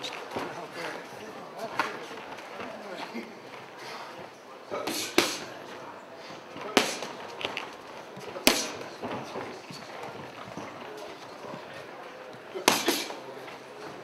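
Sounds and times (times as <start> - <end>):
boxing gloves smacking mitts: 4.8 - 5.7, 6.4 - 11.1, 12.5 - 13.2.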